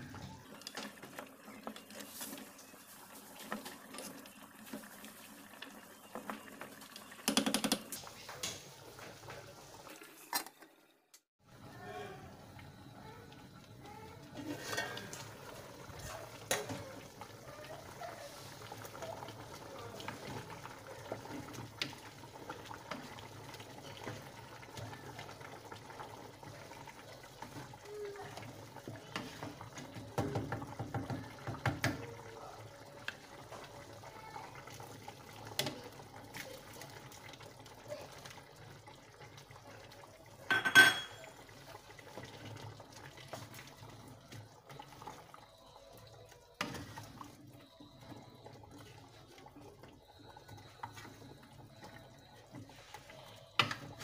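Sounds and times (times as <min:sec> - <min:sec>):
wooden spoon stirring stew: 0:13.4 - 0:32.2, 0:41.4 - 0:45.4, 0:46.4 - 0:54.0
pot lid clattering: 0:40.5 - 0:41.2
spoon knocking against pot: 0:40.5 - 0:41.2.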